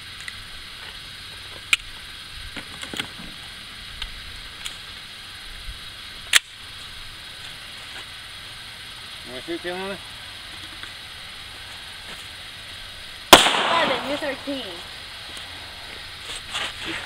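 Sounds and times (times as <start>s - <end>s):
steady hiss: 0.0s - 17.0s
gunshots: 13.3s - 14.6s.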